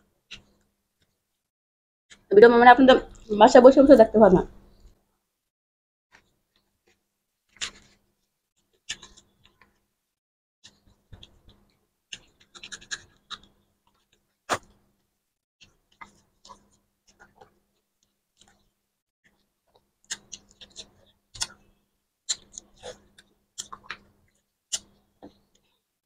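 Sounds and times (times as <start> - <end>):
chewing: 11.2 - 14.8, 15.9 - 18.7, 19.3 - 21.7, 22.3 - 25.8
eating by hand wet clicks: 19.7 - 21.6, 22.3 - 24.1.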